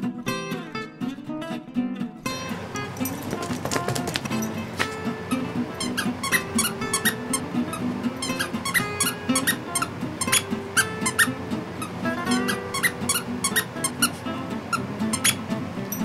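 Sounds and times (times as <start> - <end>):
squeaky toy squeaking: 5.3 - 15.4.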